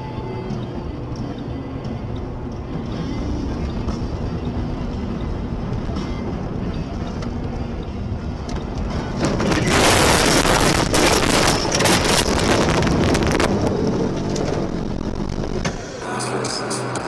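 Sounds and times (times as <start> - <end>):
tyre and road rumble: 0.0 - 17.0.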